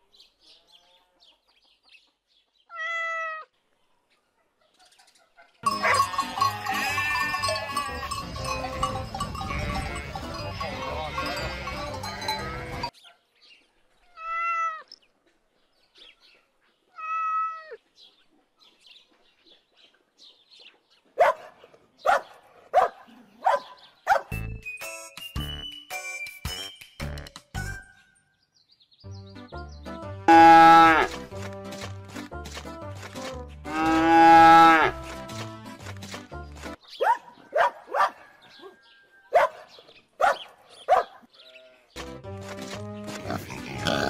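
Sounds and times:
cat meowing: 0:02.7 - 0:03.5, 0:14.2 - 0:14.9, 0:17.0 - 0:17.8
dog barking: 0:21.2 - 0:24.3, 0:37.0 - 0:41.3.

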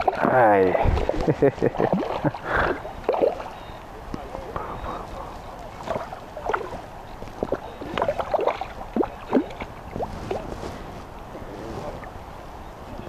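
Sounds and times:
water gurgling and sloshing: 0:00.0 - 0:13.0
water plops and splashes: 0:01.0 - 0:03.5, 0:05.8 - 0:10.0.

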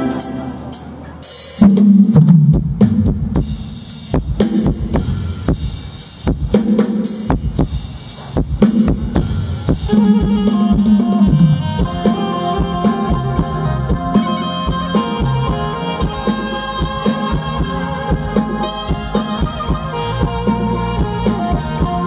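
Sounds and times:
drum kit playing: 0:00.0 - 0:22.0
low bass notes: 0:09.1 - 0:22.0.

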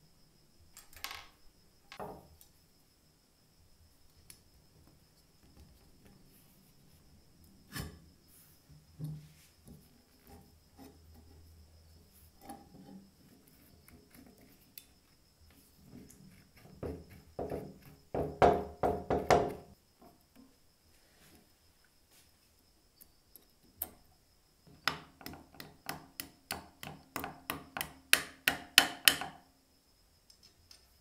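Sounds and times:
small metal clicks and taps: 0:30.3 - 0:30.9.

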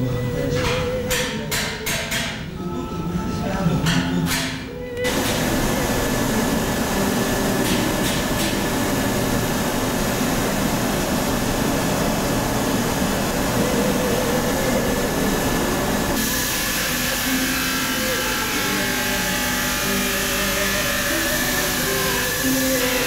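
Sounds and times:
workshop machinery whooshing: 0:05.0 - 0:23.0.

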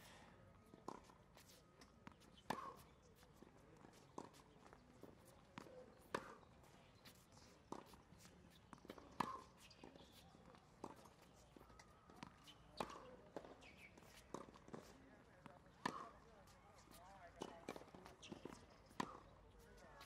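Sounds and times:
footsteps on court: 0:00.8 - 0:20.0
racket hitting tennis ball: 0:02.3 - 0:02.8, 0:05.2 - 0:06.4, 0:07.7 - 0:11.1, 0:11.7 - 0:14.9, 0:15.6 - 0:16.6, 0:17.4 - 0:19.3.

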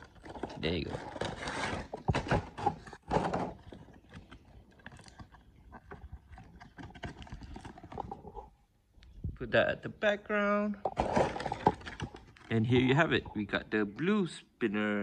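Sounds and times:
cardboard and plastic packaging rustling: 0:00.0 - 0:08.4, 0:10.9 - 0:12.6.

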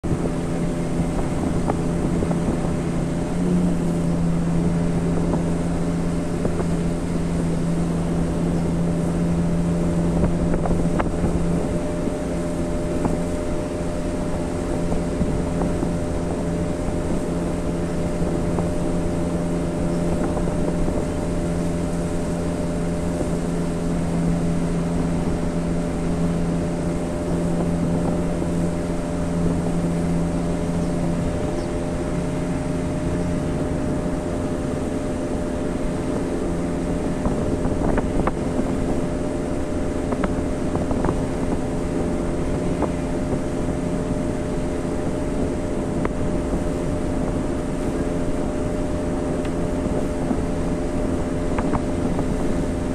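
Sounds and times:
boat motor humming: 0:00.0 - 0:52.9
rushing water: 0:00.0 - 0:52.9
wind: 0:00.0 - 0:52.9.

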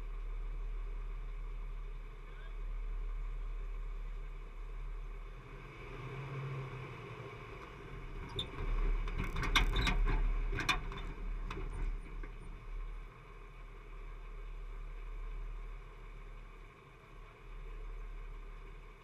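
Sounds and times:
vehicle low rumble: 0:00.0 - 0:19.0
vehicle knocks and clunks: 0:08.1 - 0:12.7.

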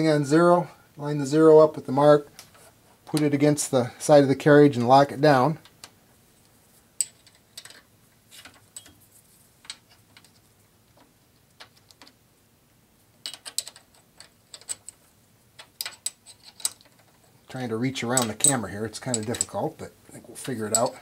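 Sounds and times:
light metallic clicks and taps: 0:18.1 - 0:19.6, 0:20.4 - 0:21.0.

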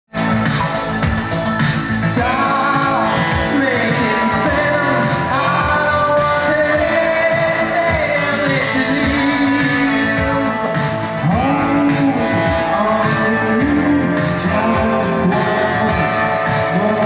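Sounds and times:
live pop-rock band playing: 0:00.1 - 0:17.0.

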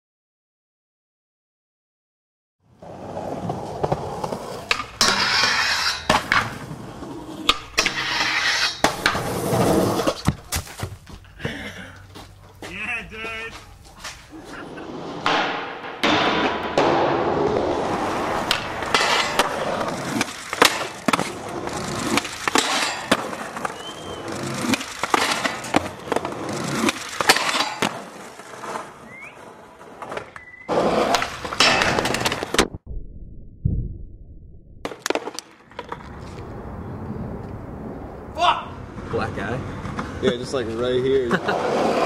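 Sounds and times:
skateboard wheels rolling: 0:02.6 - 0:32.8, 0:34.9 - 0:42.0
skateboard popping and landing: 0:02.8 - 0:11.0, 0:14.9 - 0:32.8, 0:34.8 - 0:36.5
low rumble: 0:32.8 - 0:34.9.

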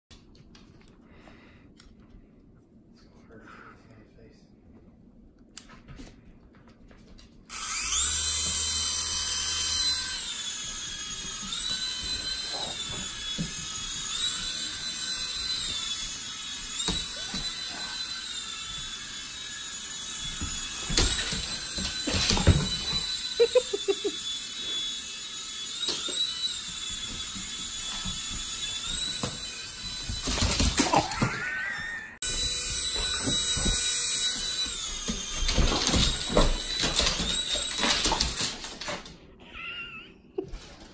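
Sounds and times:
toy motor buzzing whine: 0:07.5 - 0:31.6, 0:32.2 - 0:38.7.

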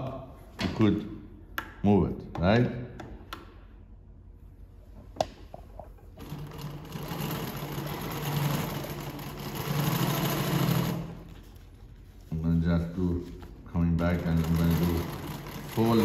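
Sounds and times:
sewing machine stitching: 0:06.2 - 0:11.3, 0:14.0 - 0:16.0.

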